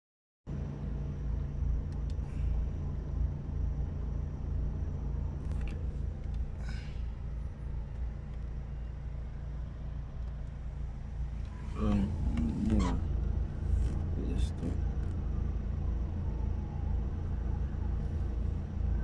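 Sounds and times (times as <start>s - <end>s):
car engine and tyres rumbling: 0.5s - 19.0s.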